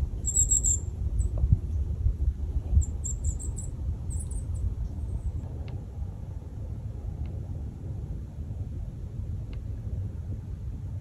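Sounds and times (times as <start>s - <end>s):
bird high thin calls: 0.2s - 0.9s.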